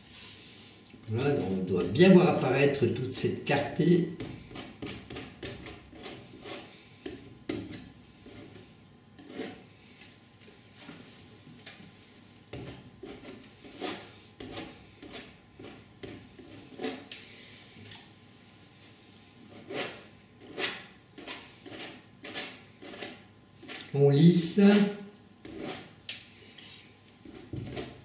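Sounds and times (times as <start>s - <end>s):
knife scraping palette: 4.2s - 9.7s, 12.5s - 17.2s, 19.5s - 28.0s
palette knife scraping canvas: 9.2s - 9.7s, 12.6s - 17.1s, 19.5s - 23.8s, 24.7s - 25.9s.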